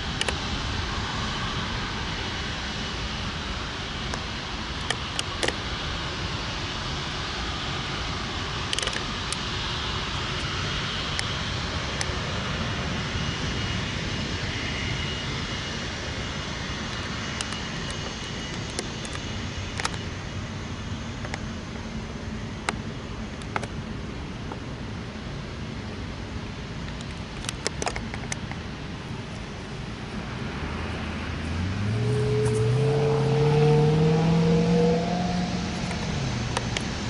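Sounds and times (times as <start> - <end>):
jet engines roaring: 0.0 - 37.0
faint high whine: 28.4 - 37.0.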